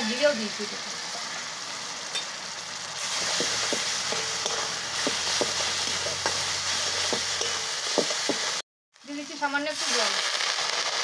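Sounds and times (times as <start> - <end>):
spice paste sizzling in oil: 0.0 - 11.0
spatula scraping and tapping pan: 3.1 - 8.6.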